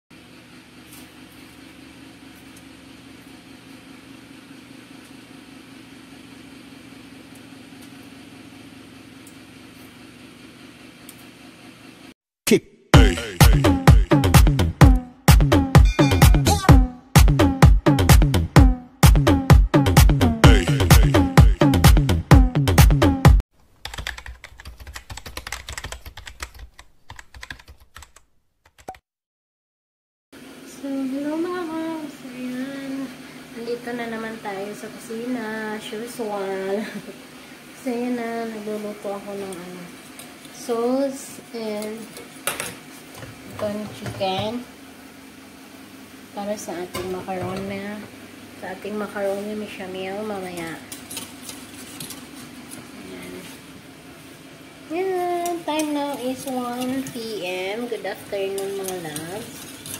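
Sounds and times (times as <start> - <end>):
steady mechanical hum: 0.2 - 12.2, 30.4 - 59.9.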